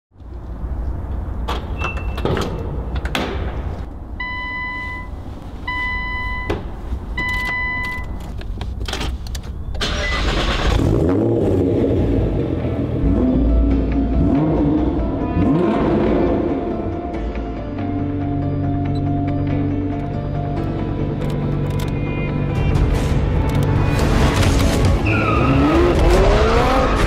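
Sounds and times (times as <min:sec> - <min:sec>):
car engine starting and revving: 0:09.8 - 0:17.1, 0:23.4 - 0:27.0.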